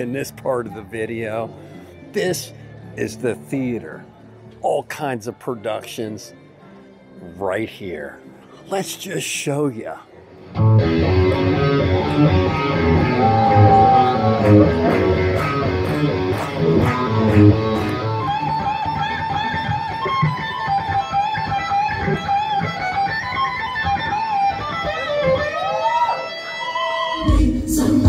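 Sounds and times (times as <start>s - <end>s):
live rock music: 10.4s - 27.4s
held lead guitar line: 10.4s - 28.0s.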